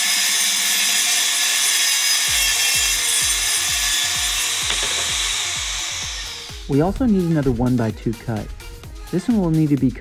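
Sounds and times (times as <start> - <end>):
table saw cutting plywood: 0.0 - 6.9.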